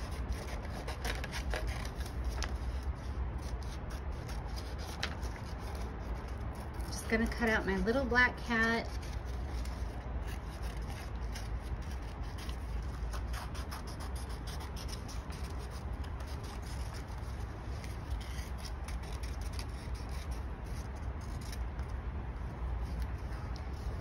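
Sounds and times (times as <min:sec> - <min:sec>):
scissors snipping paper: 0:00.0 - 0:07.6, 0:08.8 - 0:22.0
paper rustling: 0:00.3 - 0:07.0.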